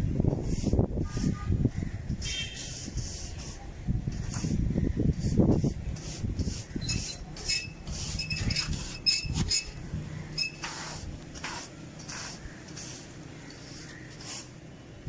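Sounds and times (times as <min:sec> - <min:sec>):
hand tool scraping concrete: 0:06.4 - 0:09.8.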